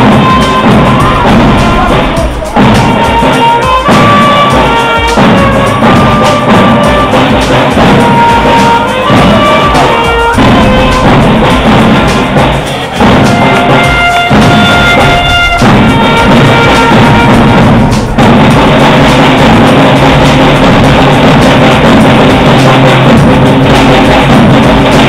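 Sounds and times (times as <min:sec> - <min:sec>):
music with drums and held notes: 0:00.0 - 0:25.0.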